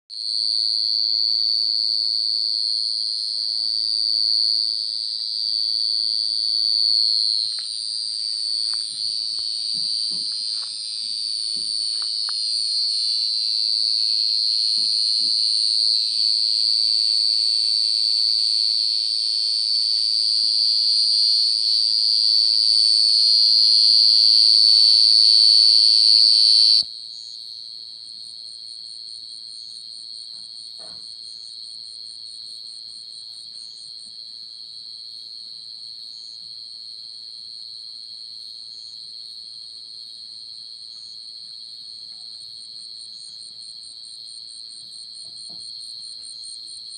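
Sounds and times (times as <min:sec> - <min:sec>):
cricket trilling: 0:00.2 - 0:26.9.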